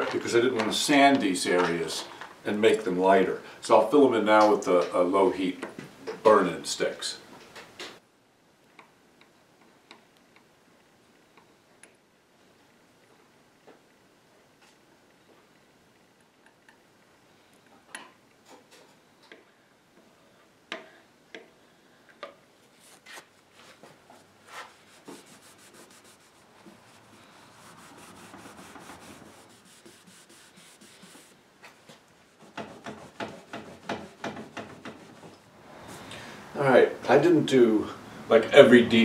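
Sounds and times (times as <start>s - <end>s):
tools scraping on wood: 22.8s - 35.5s.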